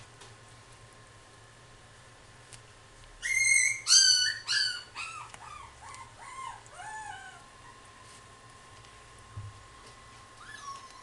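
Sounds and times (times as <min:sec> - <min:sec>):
puppy whining and yelping: 0:03.2 - 0:07.9, 0:10.4 - 0:11.0.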